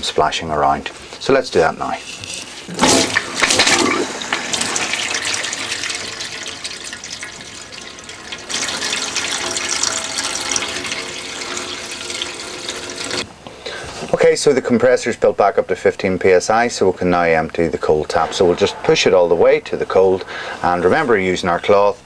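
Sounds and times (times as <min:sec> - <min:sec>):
water gushing into a steel sink: 0:02.7 - 0:13.2.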